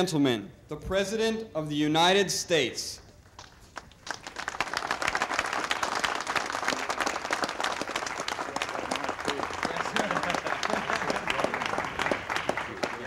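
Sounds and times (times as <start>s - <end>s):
crowd applauding: 3.4s - 13.0s.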